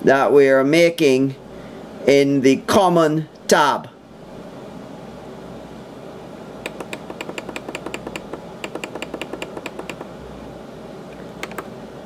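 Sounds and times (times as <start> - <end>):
synthesizer controls clicking: 6.6 - 10.1, 11.1 - 11.7.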